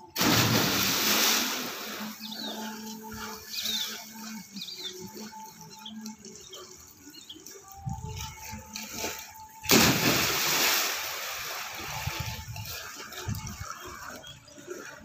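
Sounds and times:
light splashing of swimmers: 0:00.0 - 0:15.0
loud splash of jump into water: 0:00.2 - 0:02.2, 0:09.6 - 0:12.1.

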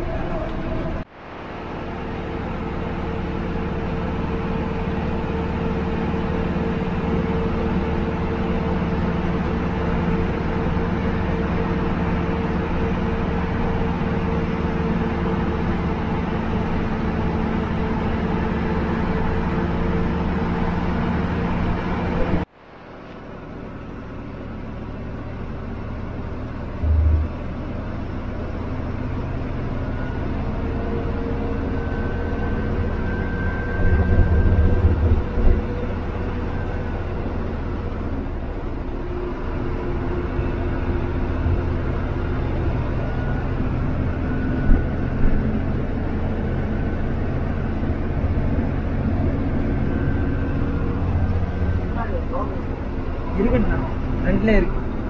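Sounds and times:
bus diesel engine running: 0:00.0 - 0:55.0
road noise: 0:00.0 - 0:55.0
short low thump: 0:26.8 - 0:27.4.

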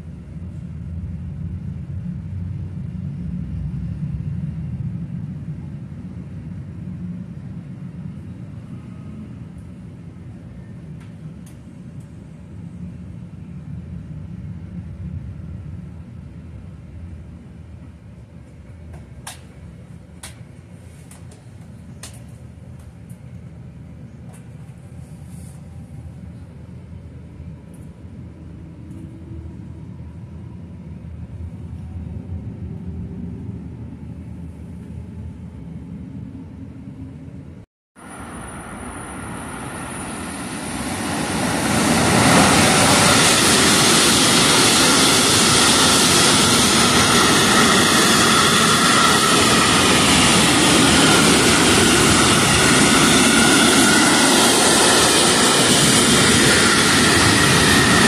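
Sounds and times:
freight train passing at speed: 0:00.0 - 0:58.0
low rumble inside train carriage: 0:00.0 - 0:58.0.

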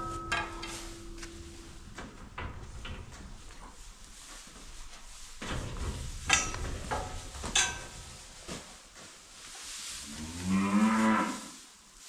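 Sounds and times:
sharp metal clanks: 0:00.0 - 0:02.0
rustling in barn: 0:00.0 - 0:12.0
cow mooing: 0:10.1 - 0:11.4.

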